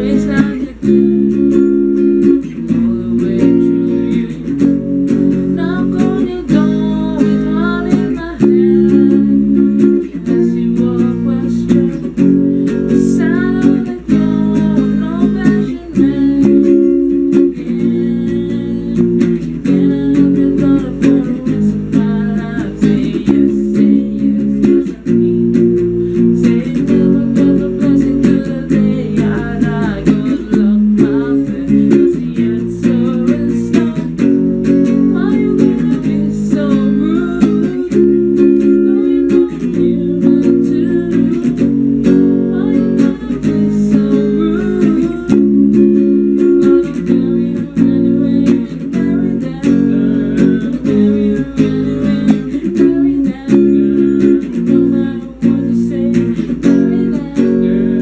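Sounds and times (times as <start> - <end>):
electric guitar playing: 0.0 - 58.0.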